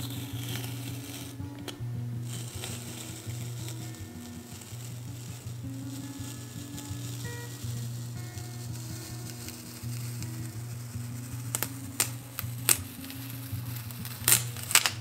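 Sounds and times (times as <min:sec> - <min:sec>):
soft background music: 0:00.0 - 0:15.0
tape peeling with crackle: 0:00.0 - 0:15.0.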